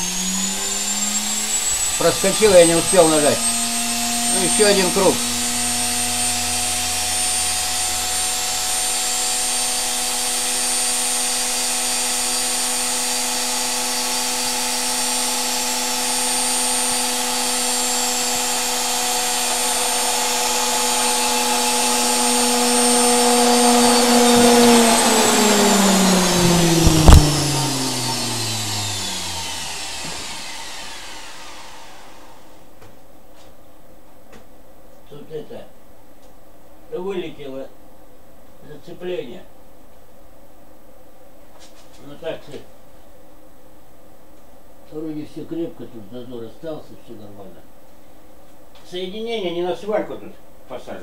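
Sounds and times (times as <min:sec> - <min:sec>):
motor hum and high whine: 0:00.0 - 0:32.7.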